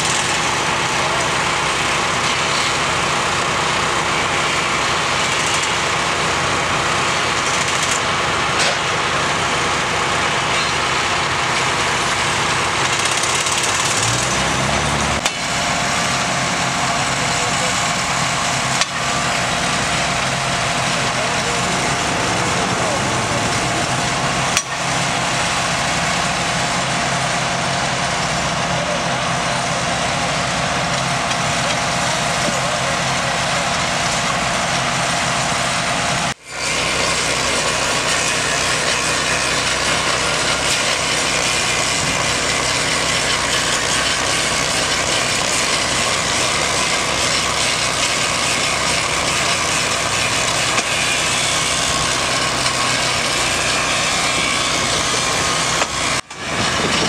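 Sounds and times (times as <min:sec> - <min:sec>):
small engine running: 0:00.0 - 0:57.0.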